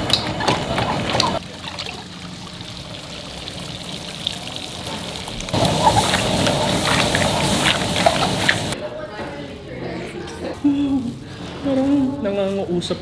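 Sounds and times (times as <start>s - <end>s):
food sizzling in a wok: 2.0s - 8.8s.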